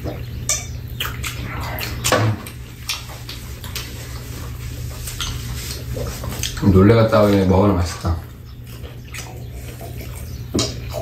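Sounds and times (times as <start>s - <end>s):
steady low hum: 0.0s - 6.9s.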